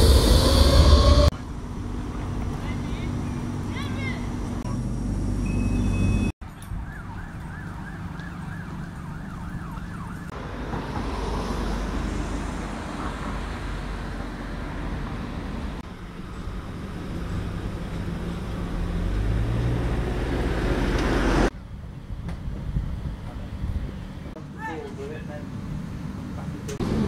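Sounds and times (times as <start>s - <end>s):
siren yelping: 6.7s - 10.3s
roar of passing traffic: 10.2s - 21.6s, 25.5s - 27.0s
vehicle engine pulling away: 10.4s - 21.5s, 26.8s - 27.0s.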